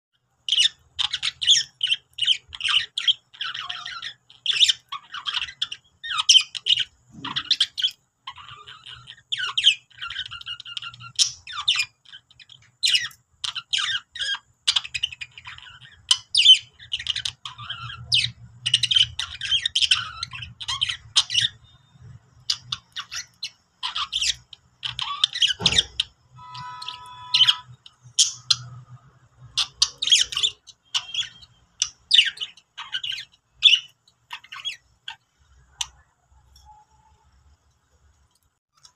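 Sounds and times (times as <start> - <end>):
budgerigars chattering: 0.5 - 21.7, 22.5 - 28.7, 29.5 - 35.2.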